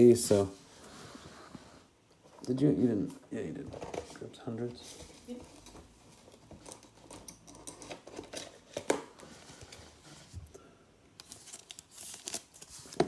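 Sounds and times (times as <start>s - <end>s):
rustling of plastic card sleeves: 11.2s - 13.0s.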